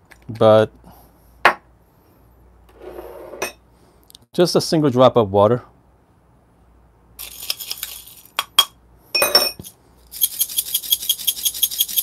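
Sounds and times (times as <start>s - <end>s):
coffee beans rattling in cup: 7.2s - 8.5s, 10.0s - 12.0s.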